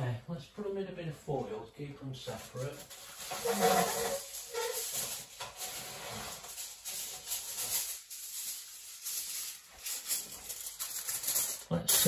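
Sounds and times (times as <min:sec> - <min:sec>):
aluminium foil crinkling: 0:02.3 - 0:12.0.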